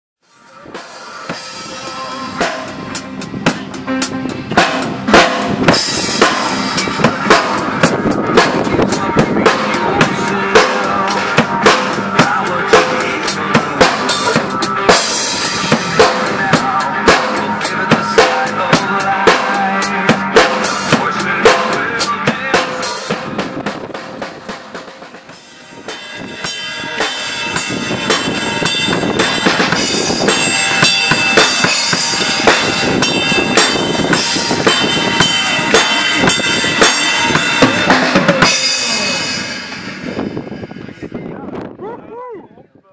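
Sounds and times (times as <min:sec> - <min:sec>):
rock drum beat: 0:00.7 - 0:41.5
cymbals ringing: 0:25.4 - 0:41.4.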